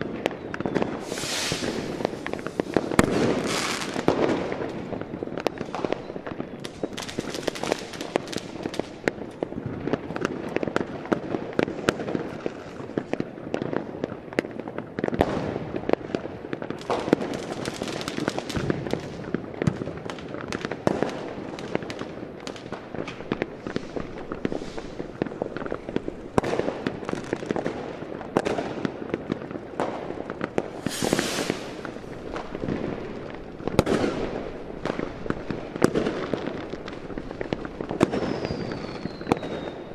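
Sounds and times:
fire crackling and popping: 0:00.0 - 0:39.9
hissing flare of fire: 0:01.0 - 0:04.1, 0:30.6 - 0:32.6.

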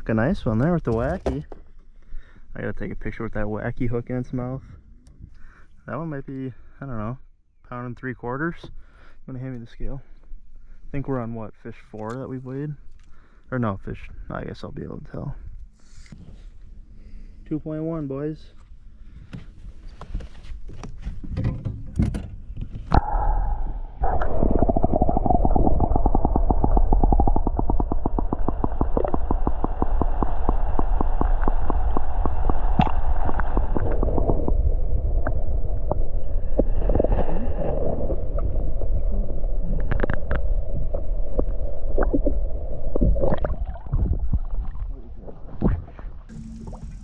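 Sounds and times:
muffled underwater rumble: 0:22.8 - 0:47.0
water gurgling and sloshing: 0:22.8 - 0:47.0
rapid even ticks: 0:24.7 - 0:34.5.

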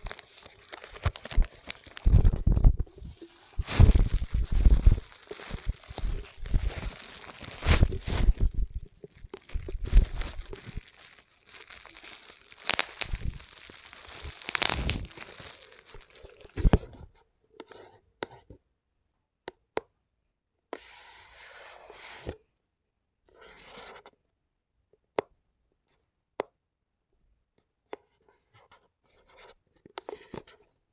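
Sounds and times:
plastic packaging crinkling and tearing: 0:00.0 - 0:17.0
rustling of handling: 0:00.0 - 0:17.1.

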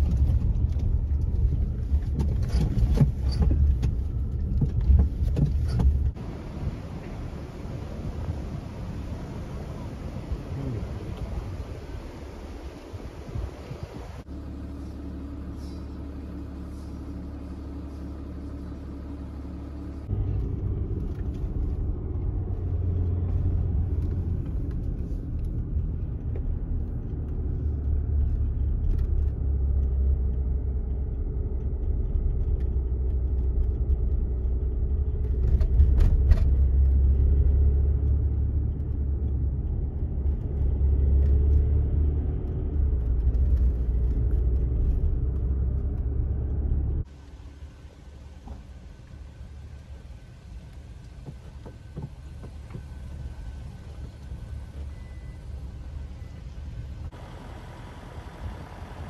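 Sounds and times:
car engine and road noise: 0:00.0 - 0:59.0.

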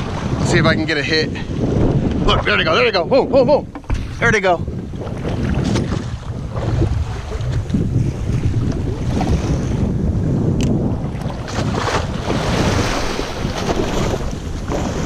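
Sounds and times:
water slapping against boat: 0:00.0 - 0:15.0
wave splashing against boat: 0:00.0 - 0:15.0
wind buffeting microphone: 0:00.0 - 0:15.0.

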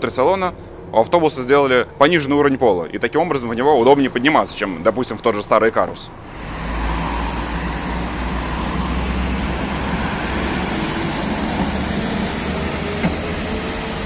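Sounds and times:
tyres on road: 0:00.0 - 0:14.0
bus engine running: 0:06.0 - 0:14.0.

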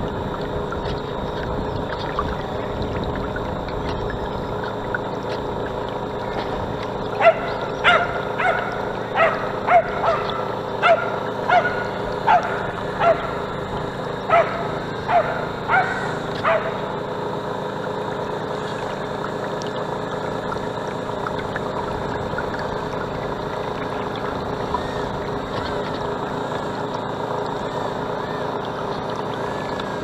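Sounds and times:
model boat motor running: 0:00.0 - 0:30.0
animal yelps: 0:07.2 - 0:13.4, 0:14.3 - 0:16.8.

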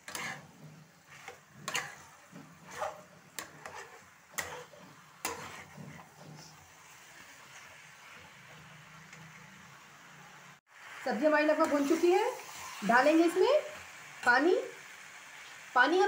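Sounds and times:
spatula scraping a pan: 0:00.0 - 0:08.7.

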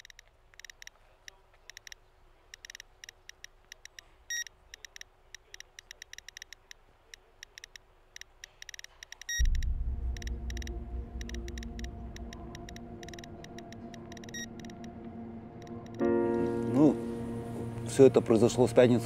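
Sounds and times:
geiger counter clicking: 0:00.0 - 0:16.2
faint steady tone: 0:08.7 - 0:18.1.

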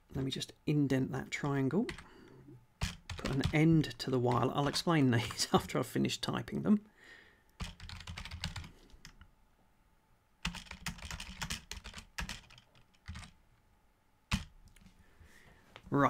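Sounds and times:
typing on computer keyboard: 0:01.9 - 0:02.1, 0:02.8 - 0:05.6, 0:07.6 - 0:09.2, 0:10.4 - 0:13.4, 0:14.3 - 0:14.8.

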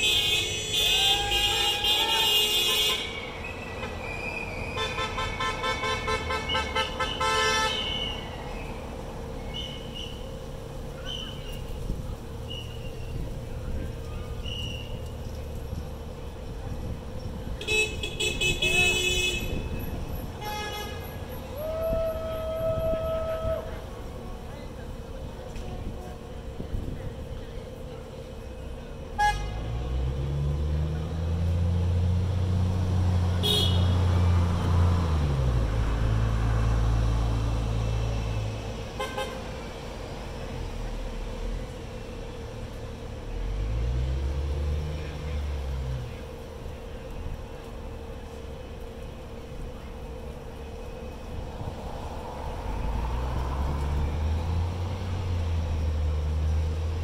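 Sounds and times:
vehicle horns tooting: 0:00.0 - 0:08.4, 0:17.6 - 0:23.4, 0:29.2 - 0:29.7, 0:33.4 - 0:34.2, 0:39.0 - 0:39.6
bus engine passing: 0:00.0 - 0:57.0.

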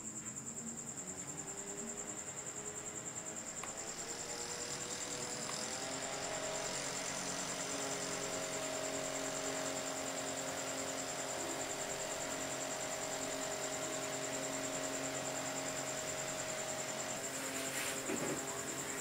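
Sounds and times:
small fan motor whirring: 0:00.0 - 0:19.0
thin high whine: 0:00.0 - 0:19.0.

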